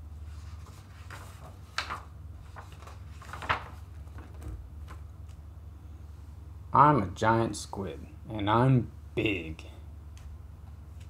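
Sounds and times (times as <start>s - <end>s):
low steady hum: 0.0s - 11.0s
page swishes: 0.3s - 5.1s
book pages turning: 0.3s - 5.4s.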